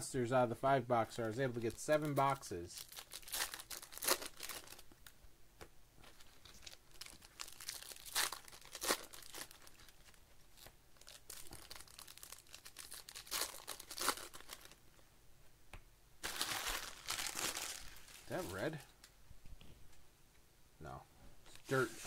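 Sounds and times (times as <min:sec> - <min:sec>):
plastic wrappers crinkling and tearing: 0:01.2 - 0:05.2, 0:06.0 - 0:14.8, 0:16.2 - 0:18.8.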